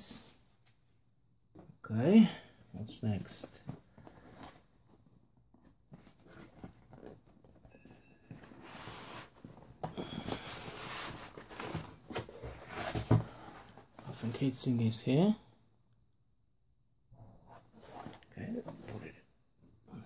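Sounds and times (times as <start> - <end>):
cardboard rustling and scraping: 3.4 - 7.6, 8.3 - 14.3.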